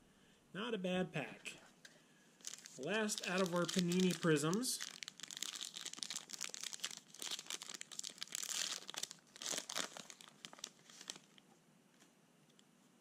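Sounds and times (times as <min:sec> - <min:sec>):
foil wrapper tearing and crinkling: 0:02.4 - 0:11.4.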